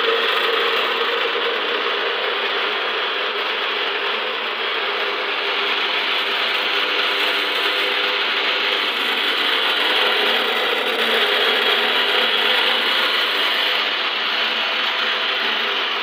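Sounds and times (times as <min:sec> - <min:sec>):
electric meat mincer grinding: 0:00.0 - 0:16.0.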